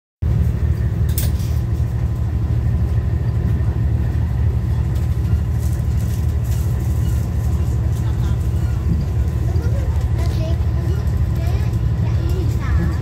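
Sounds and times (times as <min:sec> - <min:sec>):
train rumbling inside carriage: 0:00.2 - 0:13.0.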